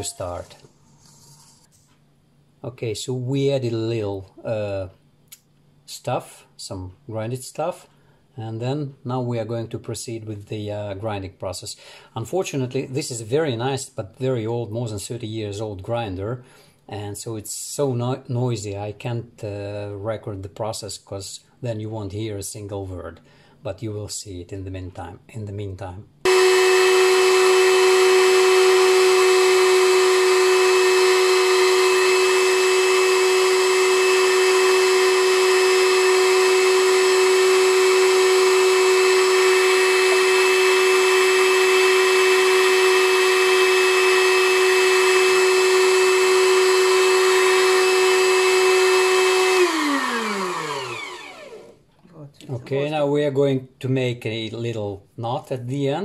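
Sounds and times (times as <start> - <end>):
electric meat grinder whining: 26.3 - 51.8
motor winding down: 26.3 - 51.8.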